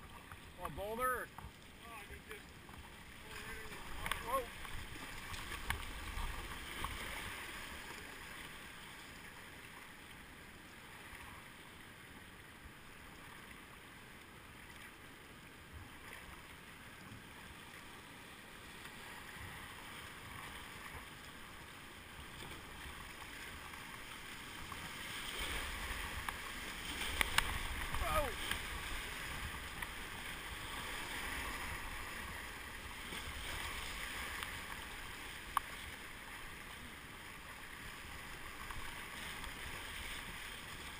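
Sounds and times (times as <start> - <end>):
river water rushing: 0.0 - 40.9.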